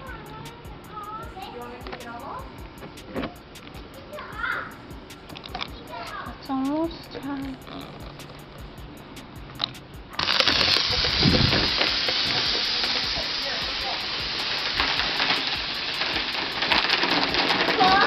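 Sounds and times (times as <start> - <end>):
fizzing spray rushing: 10.2 - 18.0.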